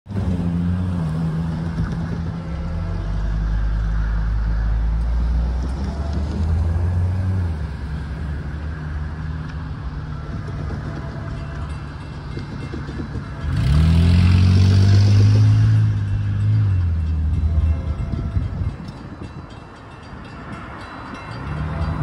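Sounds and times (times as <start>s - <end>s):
large engine droning: 0.1s - 22.0s.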